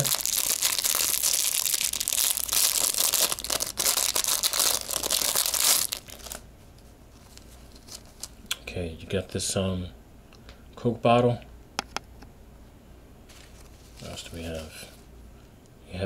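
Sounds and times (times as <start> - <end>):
plastic packaging crinkling: 0.0 - 6.4, 7.2 - 8.4.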